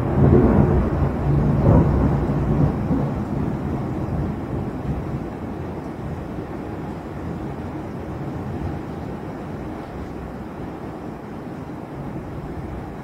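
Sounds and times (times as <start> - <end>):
thunder rumbling low: 0.0 - 6.4.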